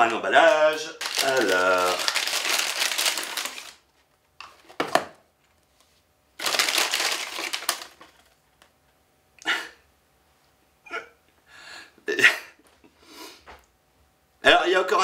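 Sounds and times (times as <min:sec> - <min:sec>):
plastic packaging crinkling and tearing: 0:00.4 - 0:03.9, 0:06.4 - 0:08.4.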